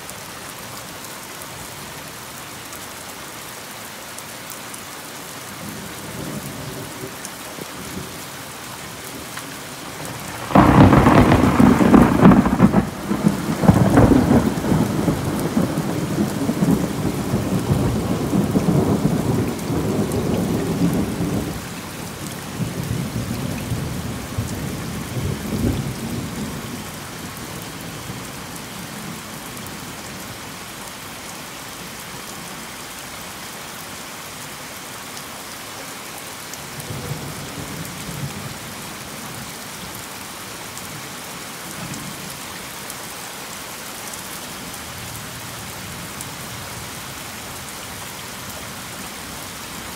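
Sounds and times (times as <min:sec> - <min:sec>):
heavy rain hissing: 0:00.0 - 0:49.9
thunder rolling: 0:10.0 - 0:21.5.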